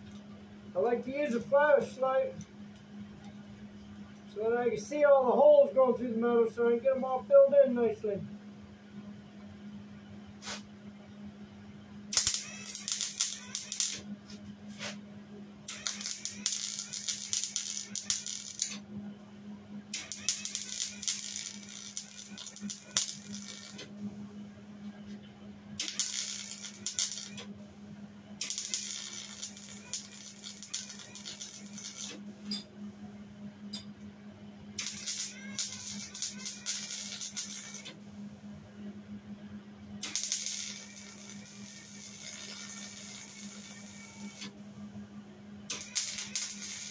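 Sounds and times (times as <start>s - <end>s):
welder arc crackling: 12.1s - 14.0s, 15.7s - 18.8s, 19.9s - 23.9s, 25.8s - 27.5s, 28.4s - 32.2s, 34.8s - 38.0s, 40.0s - 44.5s, 45.7s - 46.9s.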